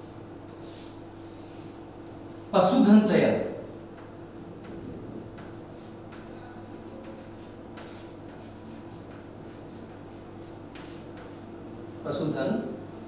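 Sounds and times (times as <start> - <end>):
steady low hum: 0.0 - 13.0
chalk scratching on chalkboard: 3.7 - 12.3.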